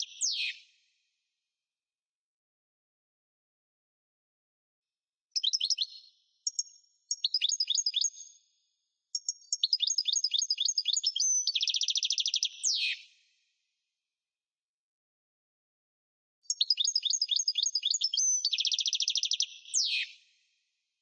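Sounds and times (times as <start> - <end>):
finch twittering song: 0.0 - 0.7, 5.4 - 8.5, 9.1 - 13.2, 16.5 - 20.2.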